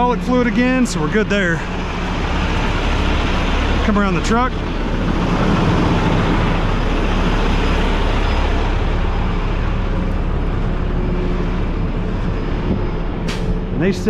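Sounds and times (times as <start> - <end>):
engine cooling fan: 0.0 - 14.0
truck diesel engine idling: 0.0 - 14.0.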